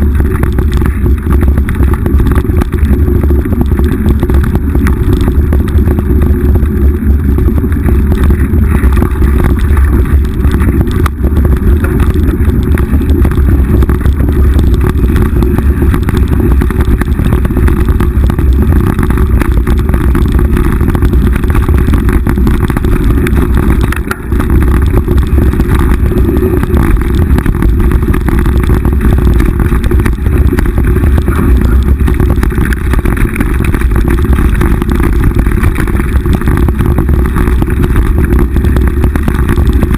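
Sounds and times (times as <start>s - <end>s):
bike trail rattle: 0.0s - 39.9s
wind rumble on microphone: 0.0s - 39.9s.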